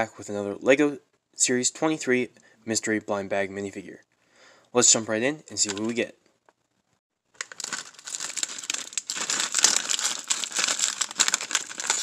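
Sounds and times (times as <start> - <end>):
plastic bag crinkling: 5.6 - 6.0, 7.4 - 12.0.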